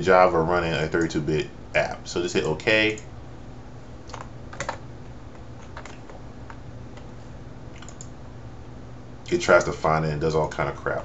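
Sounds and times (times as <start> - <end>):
steady low hum: 0.0 - 11.0
light computer clicks: 7.8 - 8.2.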